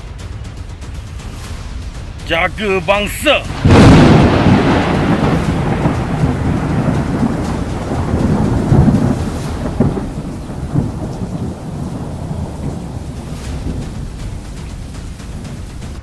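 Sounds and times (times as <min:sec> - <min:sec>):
rain: 0:00.0 - 0:16.0
thunder rumbling: 0:00.0 - 0:16.0.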